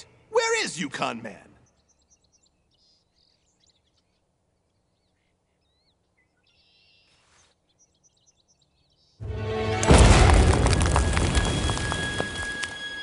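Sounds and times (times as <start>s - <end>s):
birds chirping: 0.0s - 9.3s.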